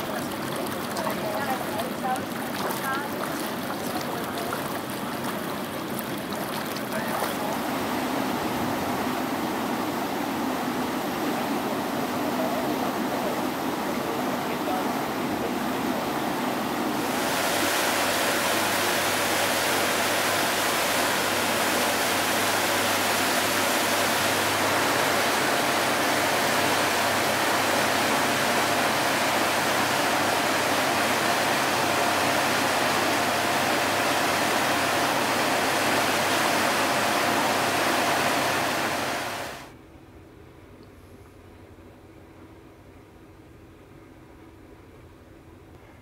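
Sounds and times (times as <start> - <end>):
water churning in ship's wake: 0.0 - 39.7
faint steady hum: 35.4 - 46.0.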